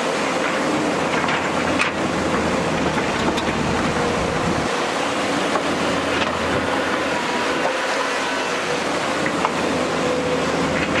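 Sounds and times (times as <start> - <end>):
excavator diesel engine under load: 0.0 - 11.0
bucket scraping rock and earth: 1.1 - 9.4.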